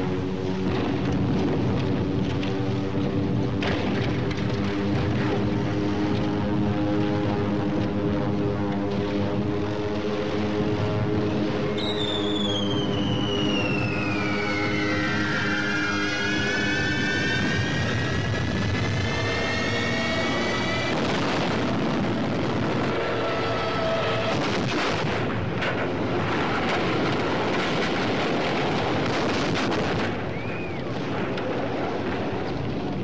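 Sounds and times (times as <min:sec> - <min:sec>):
air-raid siren wail: 0:00.0 - 0:32.8
anti-aircraft fire: 0:00.0 - 0:33.0
explosions: 0:00.6 - 0:02.4, 0:20.8 - 0:23.2, 0:24.0 - 0:33.0.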